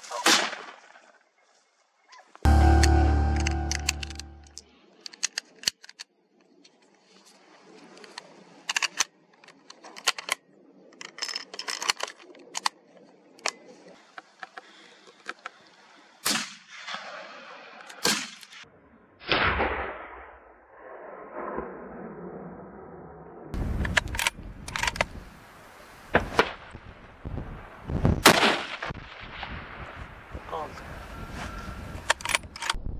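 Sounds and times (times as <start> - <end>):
metallic clacks of rifle: 8.0 - 10.4, 32.1 - 32.8.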